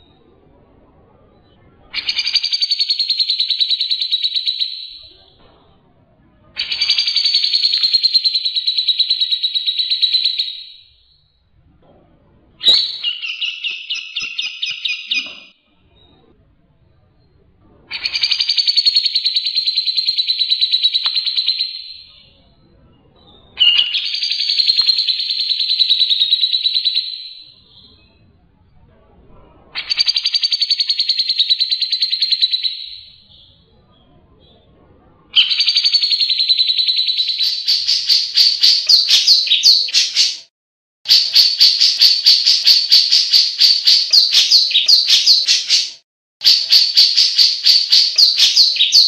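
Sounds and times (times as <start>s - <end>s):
bird chattering song: 6.6s - 11.1s, 12.6s - 15.5s, 17.9s - 22.4s, 23.2s - 28.1s, 35.4s - 40.4s, 41.1s - 49.0s.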